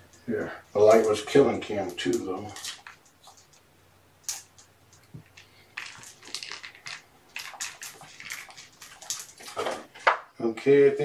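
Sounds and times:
crinkly rustles and scrapes: 0.7 - 3.6, 5.4 - 10.1.

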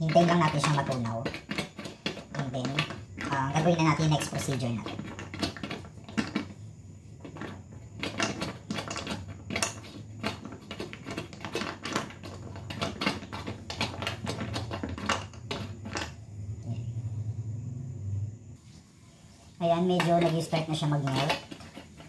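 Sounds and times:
chocolate pieces clicking on metal pan: 0.0 - 6.5, 7.4 - 16.1
low steady hum: 15.4 - 19.8.

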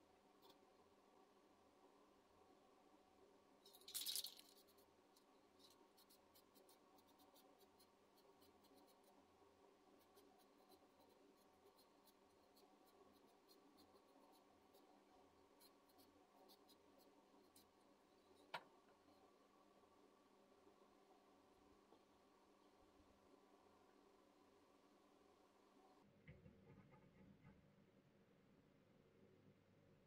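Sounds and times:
faint steady hum: 0.0 - 30.0
light ticks and scratches: 0.3 - 0.7, 3.6 - 19.2.

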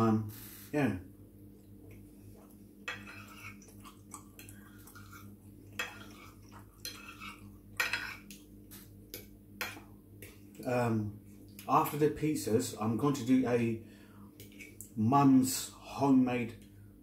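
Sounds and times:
fork scraping a plate: 2.8 - 8.4, 14.4 - 14.8.

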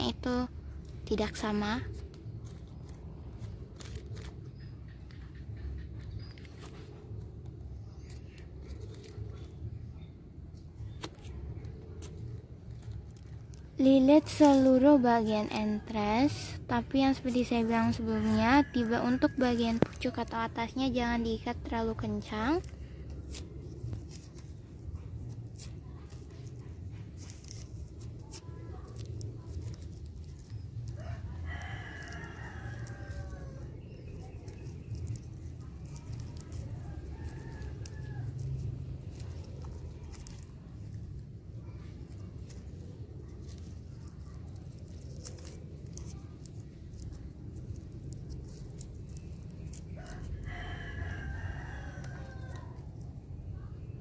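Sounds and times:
thin plastic crinkling: 0.6 - 16.0, 17.1 - 53.3
steady low rumble: 14.8 - 54.0
rooster crowing: 31.0 - 33.6, 50.0 - 52.8.

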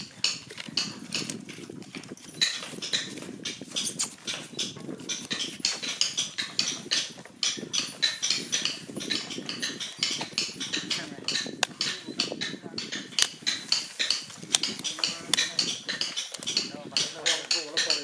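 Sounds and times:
paper and card rustling: 0.5 - 5.9, 13.2 - 18.0
sharp paper snaps: 13.2 - 16.6.

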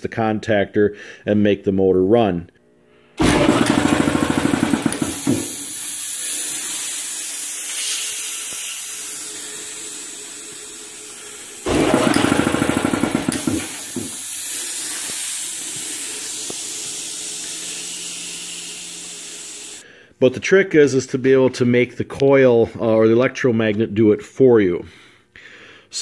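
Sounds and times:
compressor motor and pump running: 3.1 - 19.8
air hissing: 3.2 - 19.9.

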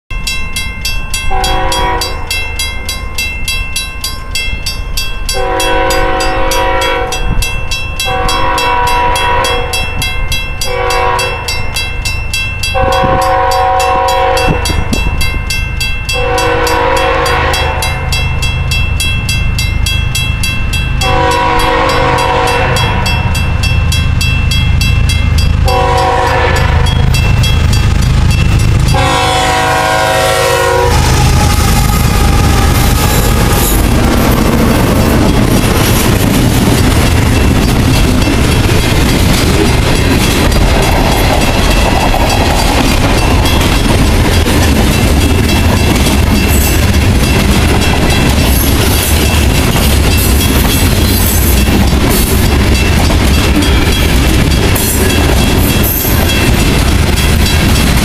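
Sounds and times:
crossing signal bell ringing: 0.1 - 58.0
locomotive air horn blasts: 1.3 - 2.4, 5.4 - 7.3, 8.0 - 9.9, 10.7 - 11.6, 12.8 - 14.8, 16.2 - 18.1, 21.0 - 23.3, 25.6 - 27.0, 28.9 - 33.8.

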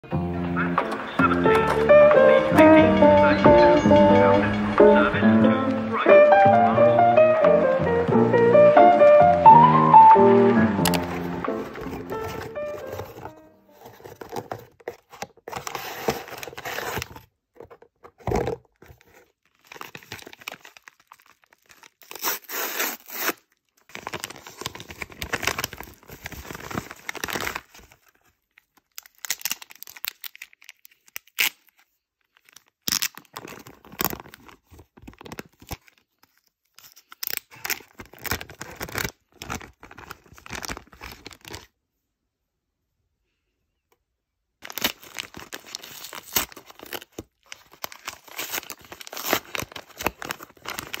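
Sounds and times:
paper mailer crinkling: 0.7 - 7.2, 8.6 - 41.7, 44.6 - 51.0
plastic bag rustling: 10.7 - 30.8, 37.5 - 41.7, 44.6 - 51.0
cardboard box handled: 11.2 - 19.3.

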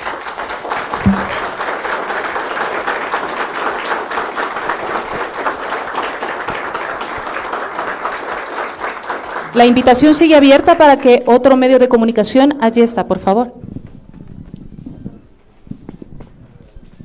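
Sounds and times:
people applauding: 0.0 - 11.3
thump: 1.1 - 1.4.

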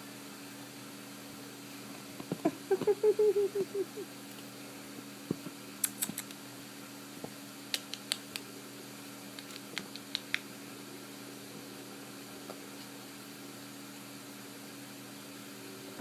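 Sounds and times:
steady low hum: 0.0 - 16.0
kitten batting yarn ball clicks: 5.8 - 6.4, 7.7 - 8.4, 9.4 - 10.5.

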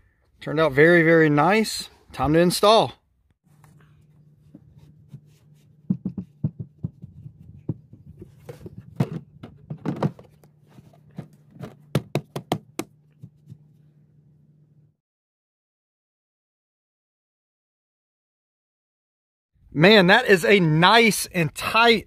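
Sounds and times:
hands knocking on carpeted panel: 5.1 - 9.2
faint low hum: 12.7 - 15.0.

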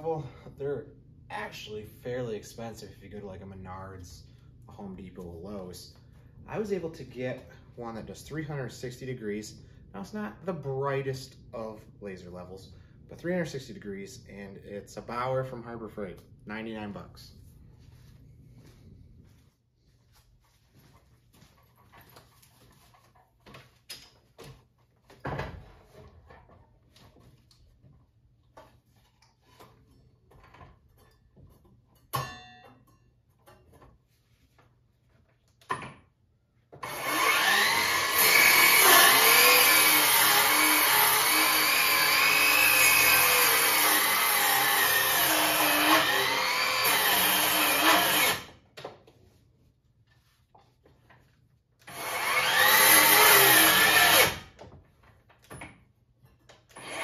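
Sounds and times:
circular saw cutting wood: 36.8 - 48.5, 51.9 - 54.5.

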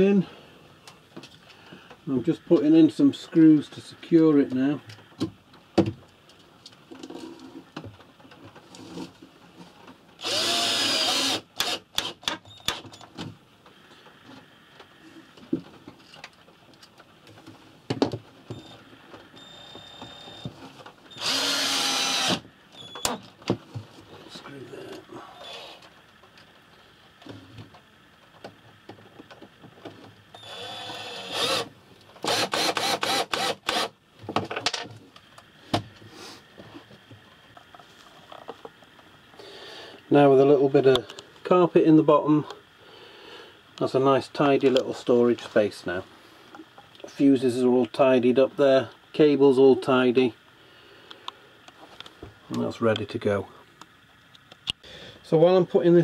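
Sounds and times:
cordless drill driving screw: 10.2 - 12.8, 21.1 - 22.4, 30.4 - 33.9.

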